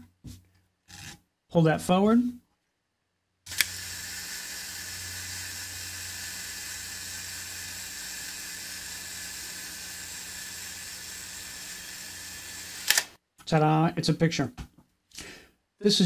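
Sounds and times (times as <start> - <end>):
camera self-timer whirring: 3.5 - 13.2.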